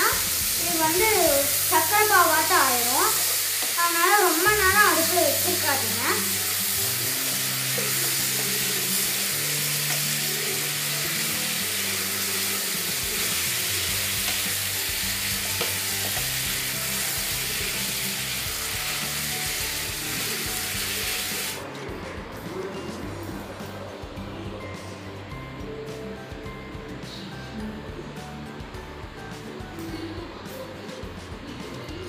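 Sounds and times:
food sizzling and bubbling in a pan: 0.0 - 21.6.

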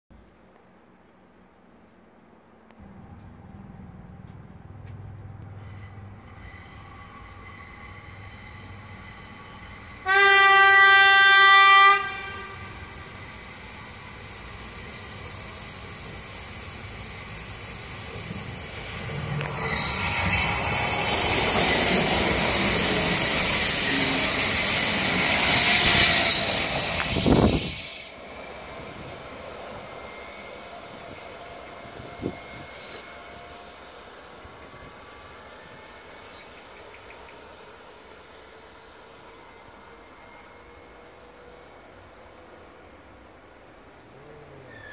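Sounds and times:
train rushing past: 2.8 - 44.2
train horn blast: 9.9 - 12.6, 25.4 - 26.4
steady high whine: 12.2 - 36.6.

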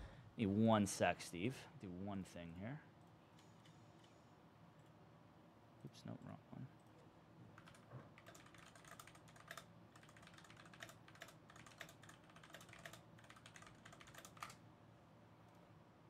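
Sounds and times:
typing on computer keyboard: 7.6 - 14.6.

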